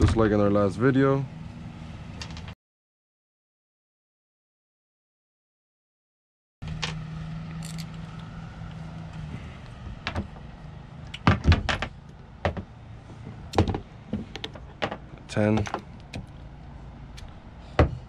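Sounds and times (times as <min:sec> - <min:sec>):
hand tools clicking and knocking: 0:13.5 - 0:16.4.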